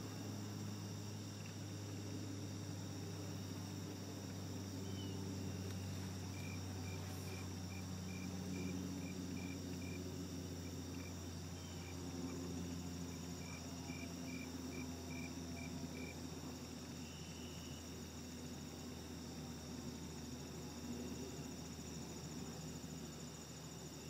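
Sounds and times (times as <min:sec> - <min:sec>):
insect chirping in pulses: 0:00.0 - 0:24.0
insects trilling: 0:00.0 - 0:24.0.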